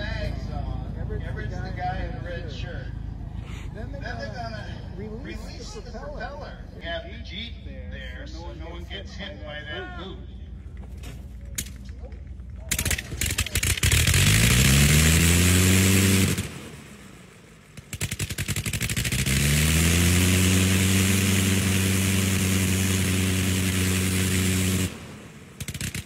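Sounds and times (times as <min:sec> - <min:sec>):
rotary aircraft engine running: 0:10.5 - 0:26.0
engine firing pops: 0:12.6 - 0:15.1, 0:17.6 - 0:19.5, 0:24.8 - 0:26.0.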